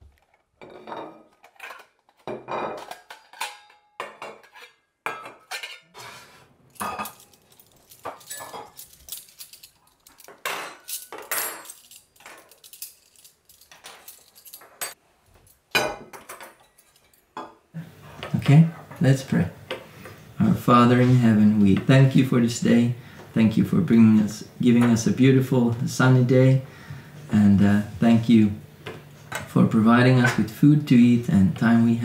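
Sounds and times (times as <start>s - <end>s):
plates and cutlery clinking: 0.2s - 20.2s.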